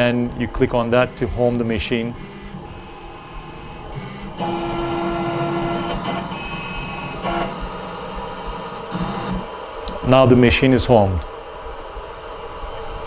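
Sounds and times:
stepper motors whining: 0.0 - 9.7.

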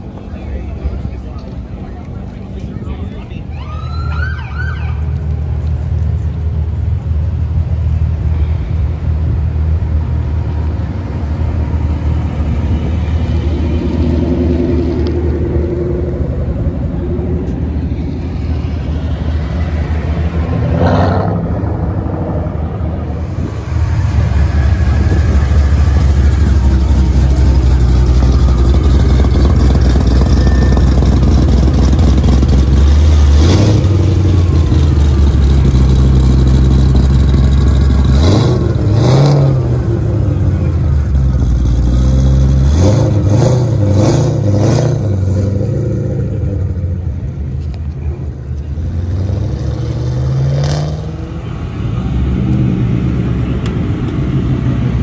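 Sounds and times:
car pulling away: 9.3 - 55.0
engine idling with deep rumble: 21.5 - 43.9
engine throttle blips: 22.7 - 41.8.

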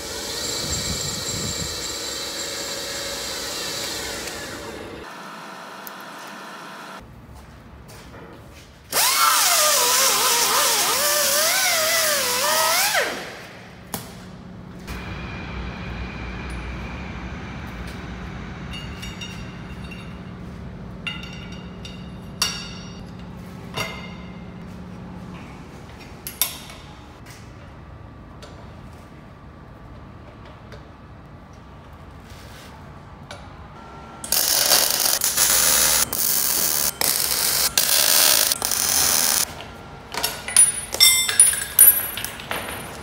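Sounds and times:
angle grinder grinding steel: 0.0 - 5.1, 34.3 - 39.5
steady low hum: 13.6 - 26.2.

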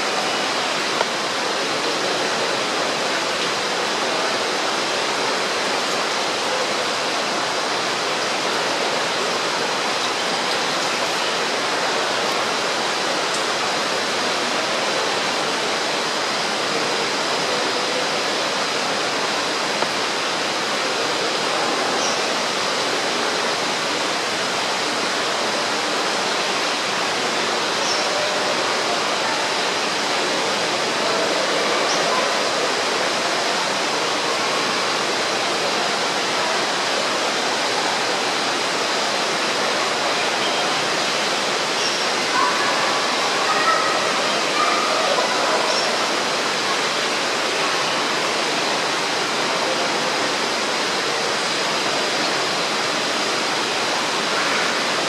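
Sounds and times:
water falling into a pool: 0.0 - 55.0.

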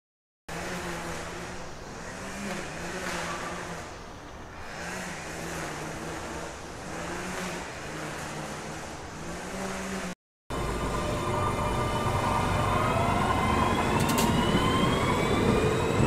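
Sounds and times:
vehicle rumble: 0.5 - 16.0
pulsing low hum: 10.5 - 13.8.

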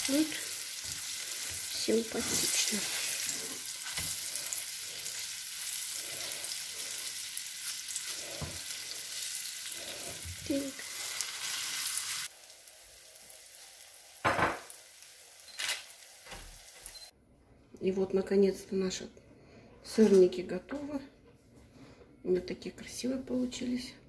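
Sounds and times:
food sizzling in oil: 0.0 - 17.1
spatula scraping a pan: 0.3 - 7.0.

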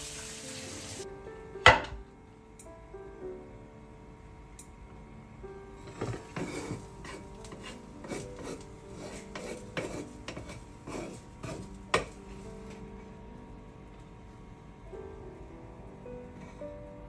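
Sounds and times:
wooden spatula scraping frying pan: 5.8 - 12.4.

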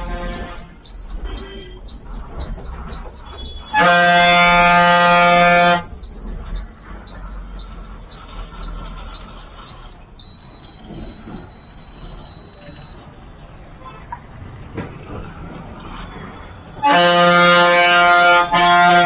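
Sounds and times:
vehicle horn blast: 0.0 - 0.8, 3.6 - 5.9, 16.7 - 19.0
high beeps: 0.0 - 3.7, 5.7 - 13.0
bus rumbling: 0.0 - 19.0.

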